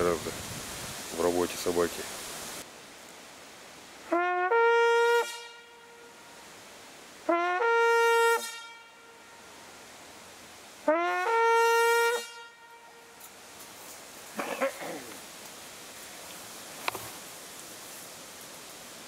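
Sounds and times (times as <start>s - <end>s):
hunting horn blasts: 4.1s - 6.4s, 7.2s - 9.8s, 10.8s - 13.4s.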